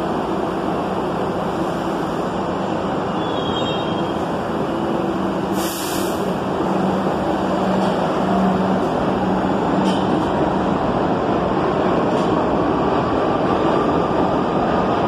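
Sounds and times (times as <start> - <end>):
subway train rumbling: 0.0 - 15.0
brief hiss: 5.5 - 6.3.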